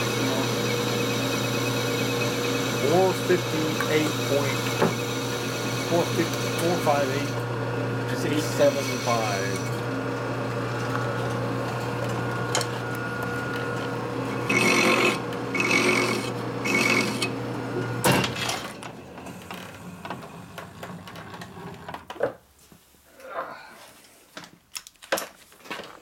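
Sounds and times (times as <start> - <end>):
fast ticking of cutting tool: 0.0 - 7.4, 14.5 - 17.3
metal lathe humming: 0.0 - 18.2.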